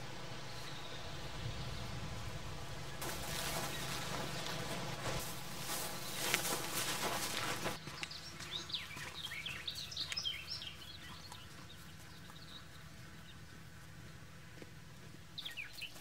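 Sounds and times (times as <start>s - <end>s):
small birds chirping: 0.0s - 16.0s
footsteps rustling through grass: 3.0s - 10.0s.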